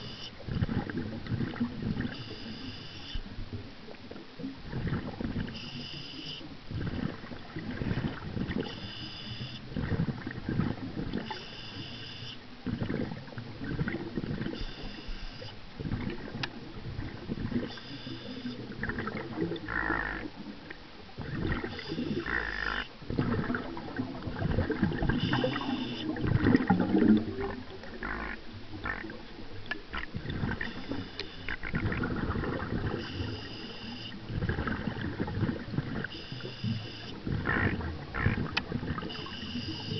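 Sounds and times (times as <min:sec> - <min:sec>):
gurgling exhaled bubbles: 0:00.0 - 0:02.3, 0:04.4 - 0:05.6, 0:06.7 - 0:08.7, 0:09.7 - 0:11.4, 0:12.6 - 0:14.6, 0:15.8 - 0:39.9
regulator inhalation hiss: 0:02.2 - 0:03.2, 0:05.6 - 0:06.5, 0:08.7 - 0:09.6, 0:11.4 - 0:12.4, 0:14.6 - 0:15.6, 0:25.1 - 0:26.1, 0:30.6 - 0:31.5, 0:33.0 - 0:34.2, 0:36.1 - 0:37.1, 0:39.1 - 0:39.9.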